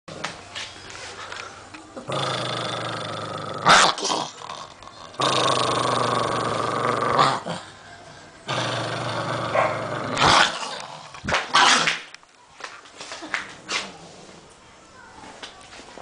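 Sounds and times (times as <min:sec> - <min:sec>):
dog growling: 0:02.0 - 0:07.8, 0:08.4 - 0:12.0.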